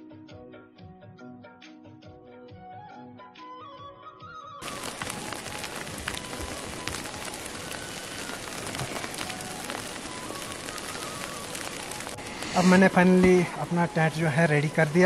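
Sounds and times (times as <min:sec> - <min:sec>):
wet snow striking tent fabric: 0:04.6 - 0:15.0.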